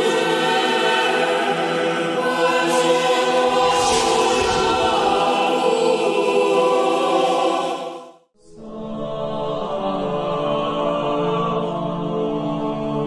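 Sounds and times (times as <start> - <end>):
chant-like music: 0.0 - 13.0
choir holding a chord: 0.0 - 13.0
whoosh: 3.0 - 6.4
low rumble: 3.4 - 5.7.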